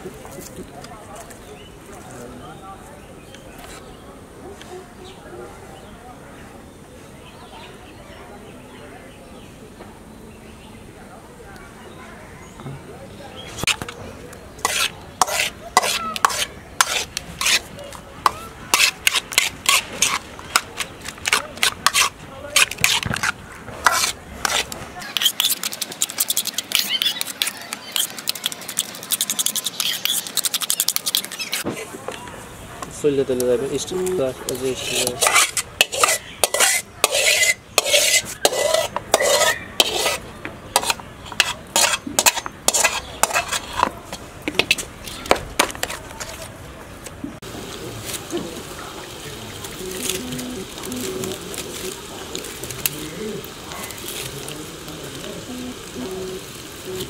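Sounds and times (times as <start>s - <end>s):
metal spatula scraping a pan: 14.6s - 31.9s, 34.5s - 46.0s.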